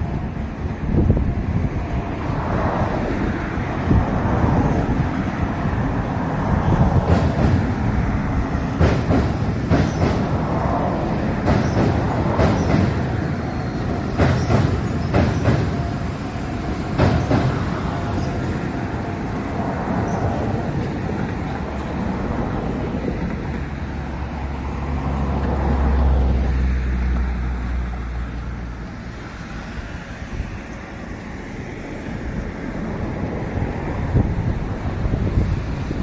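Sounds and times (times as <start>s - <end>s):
train rumbling over bridge: 0.0s - 36.0s
wheels clacking over rail joints: 4.3s - 25.8s.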